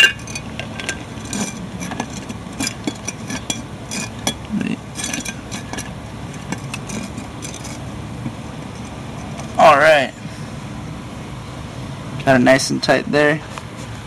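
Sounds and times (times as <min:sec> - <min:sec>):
jar lid clicking and scraping: 0:00.0 - 0:07.8
low background rumble: 0:00.0 - 0:12.3.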